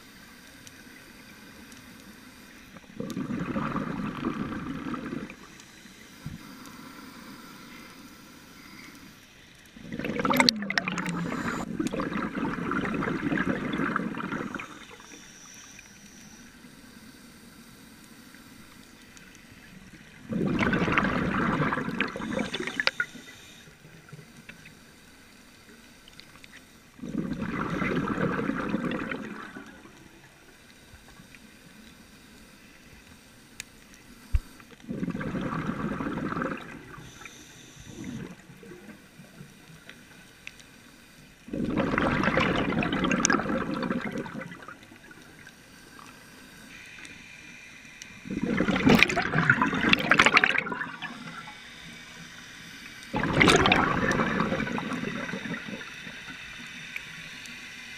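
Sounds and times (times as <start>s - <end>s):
underwater breath bubbling: 2.5s - 16.5s, 19.7s - 23.8s, 26.9s - 30.0s, 34.2s - 40.1s, 41.4s - 57.1s.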